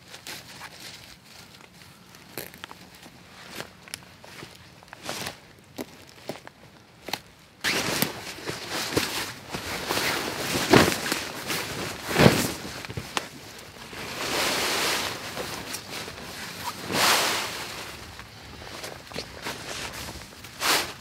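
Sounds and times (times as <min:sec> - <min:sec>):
tarp rustling and scuffing: 0:00.0 - 0:06.5, 0:07.6 - 0:21.0.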